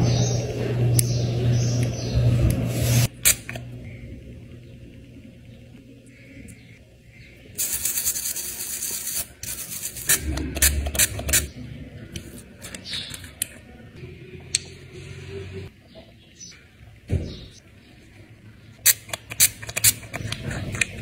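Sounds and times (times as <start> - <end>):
spray bottle hissing: 7.6 - 11.5.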